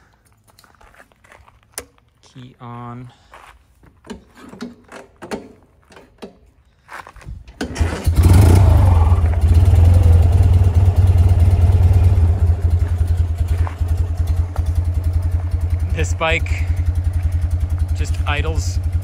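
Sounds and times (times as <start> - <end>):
motorcycle engine starting and idling: 7.4 - 19.0.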